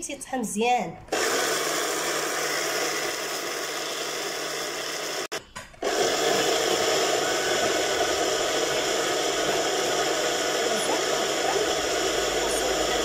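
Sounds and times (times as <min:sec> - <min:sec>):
electric blender grinding seeds: 0:01.1 - 0:13.0.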